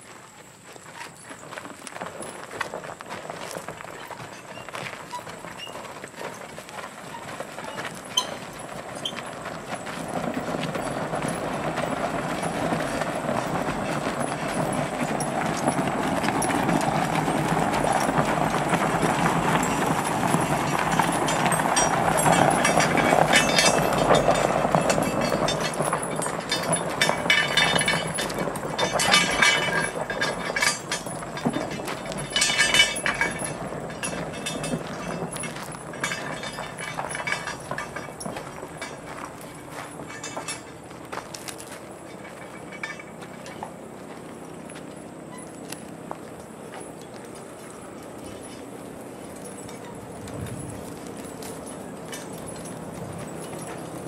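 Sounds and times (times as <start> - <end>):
hooves clopping on gravel: 0.0 - 54.0
tire scraping over gravel: 0.0 - 54.0
sharp clinks: 13.8 - 43.7, 46.9 - 54.0.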